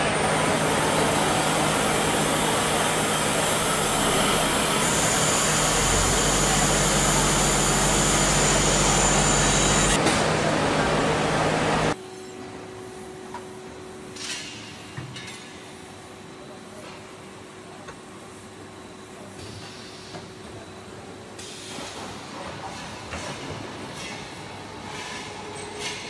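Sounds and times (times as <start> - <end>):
lathe machining with high whine: 0.0 - 12.0.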